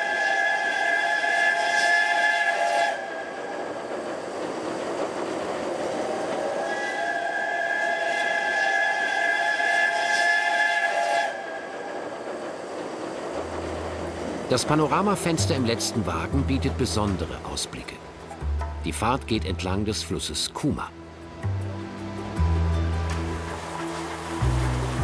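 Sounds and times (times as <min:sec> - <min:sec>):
steam whistle blasts: 0:00.0 - 0:03.3, 0:06.5 - 0:11.6
running train rushing: 0:00.0 - 0:25.0.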